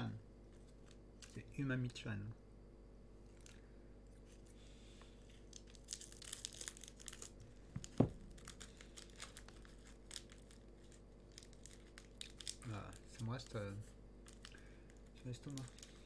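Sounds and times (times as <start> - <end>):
plastic wrapper crinkling and tearing: 5.2 - 16.0.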